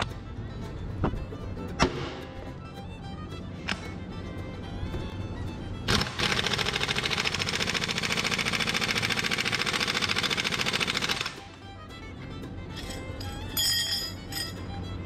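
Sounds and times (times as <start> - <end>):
impact wrench rattling: 12.8 - 14.6.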